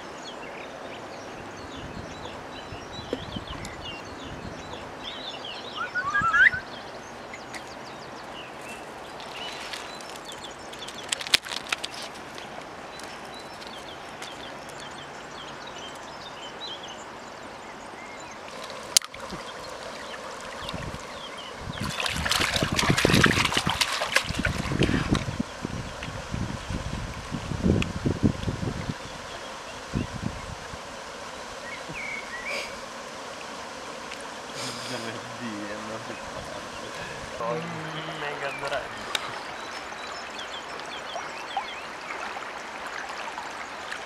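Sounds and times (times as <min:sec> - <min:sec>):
birds chirping: 0:00.0 - 0:26.0, 0:31.6 - 0:32.9, 0:33.7 - 0:44.0
shallow river over gravel: 0:00.0 - 0:44.0.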